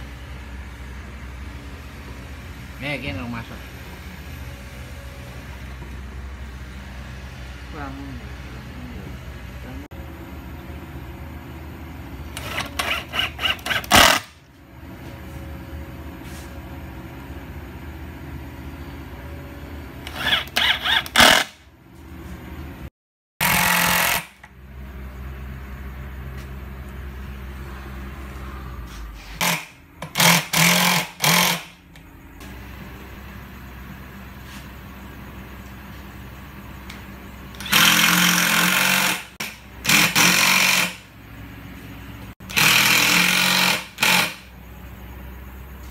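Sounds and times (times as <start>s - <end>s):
cordless drill driving screws: 12.4s - 14.3s, 20.1s - 21.5s, 29.4s - 31.7s, 37.6s - 39.2s, 42.5s - 44.4s.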